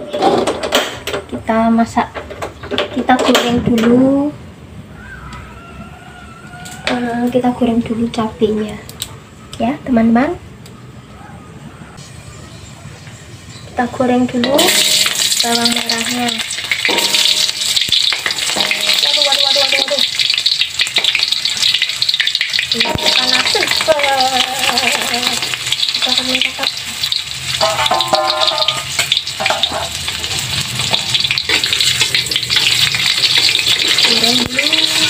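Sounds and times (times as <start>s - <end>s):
shallots sizzling in oil: 12.0s - 35.0s.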